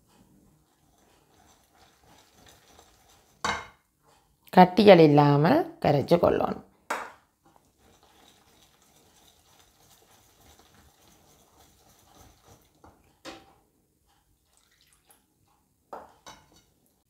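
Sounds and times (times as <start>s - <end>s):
whisk mixing batter: 0.1s - 3.6s, 7.4s - 13.2s.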